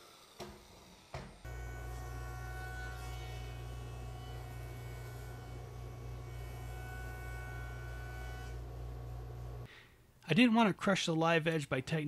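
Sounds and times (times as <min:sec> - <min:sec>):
jointer humming and whining: 0:01.5 - 0:09.7.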